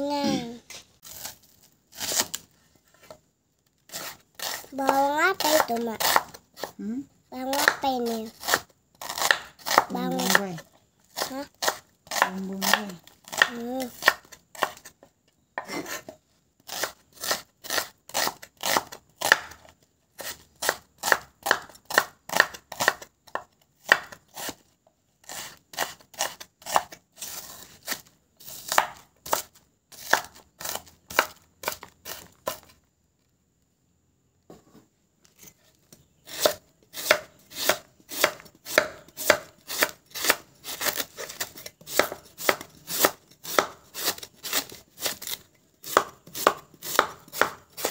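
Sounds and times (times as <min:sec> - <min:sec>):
knife chopping on wooden board: 0:03.9 - 0:06.8, 0:07.5 - 0:10.4, 0:11.2 - 0:14.9, 0:20.2 - 0:24.5, 0:28.7 - 0:32.7, 0:36.3 - 0:47.9.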